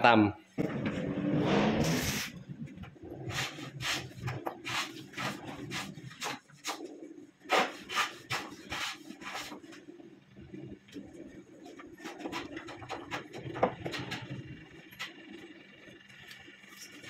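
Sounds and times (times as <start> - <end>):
hand plane shaving wood: 3.2 - 6.9, 7.5 - 9.8, 11.7 - 13.5.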